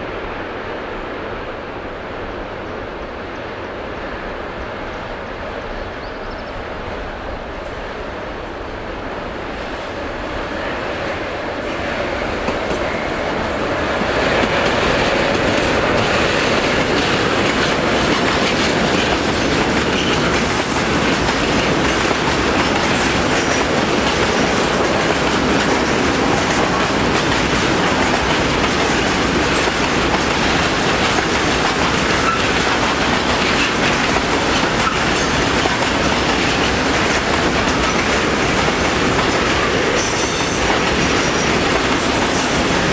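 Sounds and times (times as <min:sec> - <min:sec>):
freight train wheels rumbling on rails: 0:00.0 - 0:42.9.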